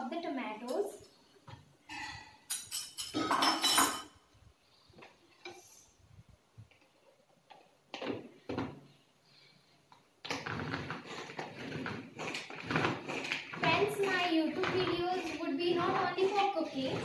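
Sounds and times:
metal spoon scraping a bowl: 0:10.3 - 0:17.0.

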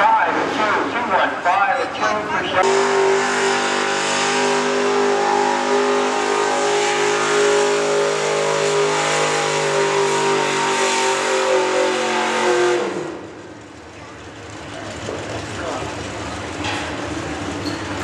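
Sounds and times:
truck engine at high revs: 0:02.5 - 0:18.0.

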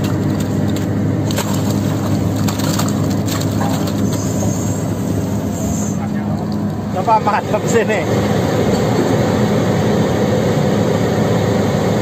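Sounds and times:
mud cracking and crunching: 0:00.0 - 0:04.4
diesel engine running: 0:00.0 - 0:12.0.

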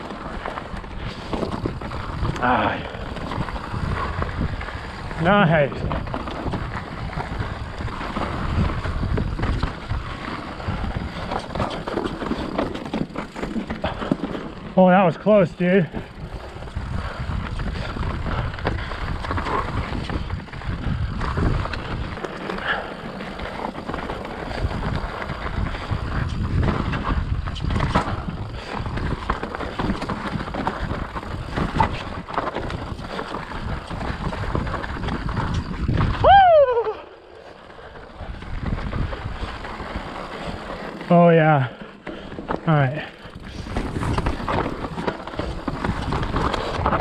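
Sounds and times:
bike tyres rumbling over dirt: 0:00.0 - 0:47.0
wind on microphone: 0:00.7 - 0:12.4, 0:15.8 - 0:23.0, 0:23.7 - 0:37.2, 0:37.8 - 0:40.8, 0:43.2 - 0:47.0.

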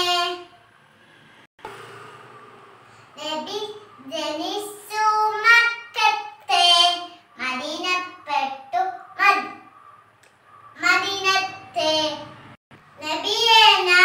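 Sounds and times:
girl singing unaccompanied: 0:00.0 - 0:00.6, 0:03.2 - 0:09.7, 0:10.8 - 0:14.0.

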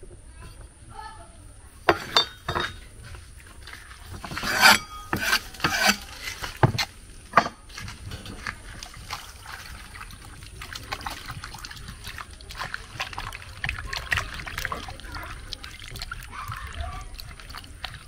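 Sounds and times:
knocks and scraping of food prep: 0:01.9 - 0:02.9, 0:04.1 - 0:08.8.

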